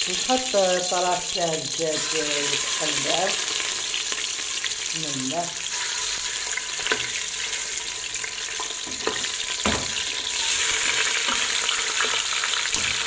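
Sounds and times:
chicken sizzling in hot oil: 0.0 - 13.0
knocks on a metal pot: 9.6 - 10.0.

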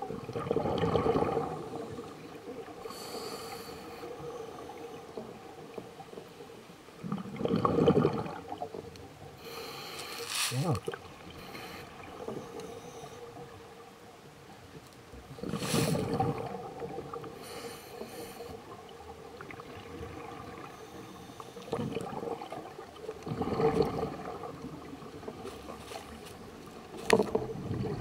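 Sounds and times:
gurgling exhaled bubbles: 0.0 - 6.3, 7.0 - 8.9, 15.3 - 25.8, 26.9 - 28.0
faint steady hum: 0.0 - 28.0
quiet hiss: 0.1 - 28.0
diver breathing through regulator: 2.8 - 4.8, 9.4 - 10.7, 15.5 - 16.1, 17.4 - 18.6.

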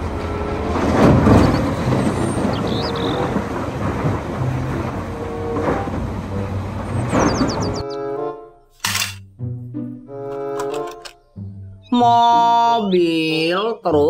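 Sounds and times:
diesel engines running: 0.0 - 7.9.

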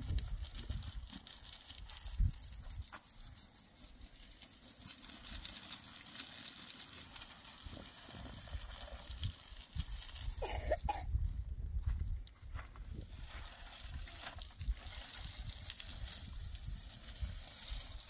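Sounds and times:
hose water spraying onto stones: 0.0 - 11.0, 12.8 - 18.0.

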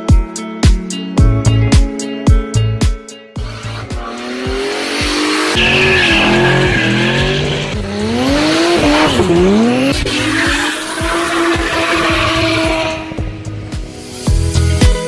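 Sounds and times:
car engine at high revs: 3.4 - 13.7
tyres squealing: 5.5 - 13.1.

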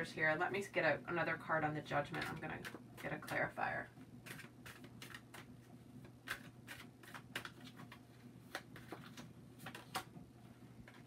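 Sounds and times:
steady low hum: 0.0 - 11.0
cards being shuffled: 4.2 - 10.1.

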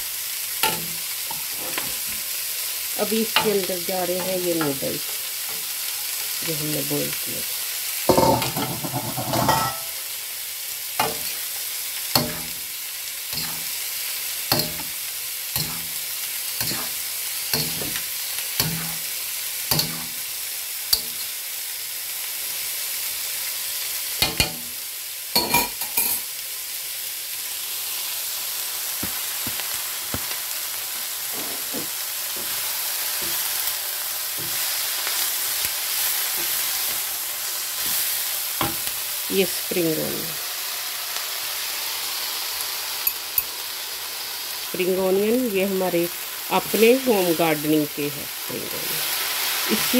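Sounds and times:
food sizzling in a wok: 0.0 - 49.9
spatula clattering: 0.6 - 2.0, 8.1 - 10.0, 11.0 - 11.5, 12.2 - 12.6, 13.3 - 13.7, 14.5 - 15.0, 15.6 - 16.0, 16.6 - 19.0, 19.7 - 20.2, 20.9 - 21.3
metal spatula scraping a wok: 8.1 - 10.0, 13.4 - 13.8, 14.6 - 16.0, 16.6 - 19.1.

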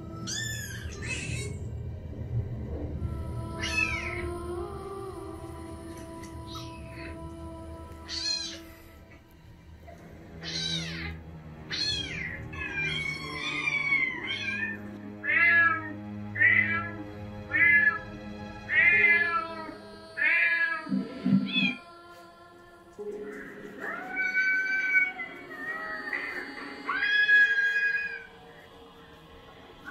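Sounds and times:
recorded cat meows: 10.4 - 16.9, 23.8 - 28.3.

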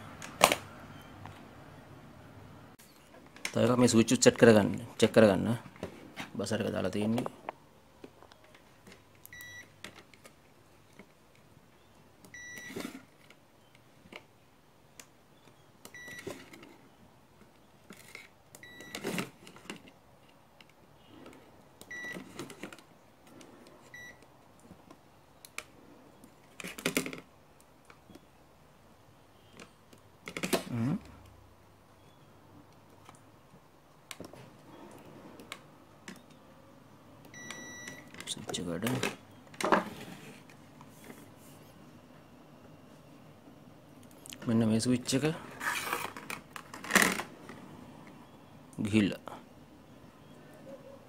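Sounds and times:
multimeter continuity beeps: 9.2 - 9.7, 12.3 - 12.8, 15.9 - 16.3, 18.6 - 19.0, 21.8 - 22.2, 23.9 - 24.2, 37.3 - 38.1.

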